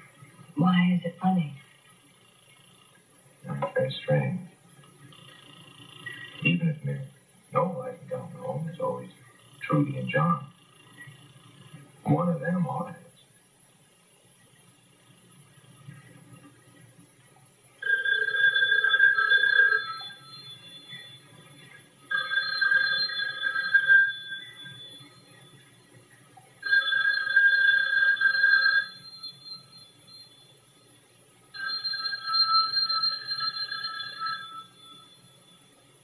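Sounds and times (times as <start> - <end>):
telephone bell ringing: 17.8 - 21.3, 22.1 - 25.6, 26.6 - 30.6, 31.6 - 35.7.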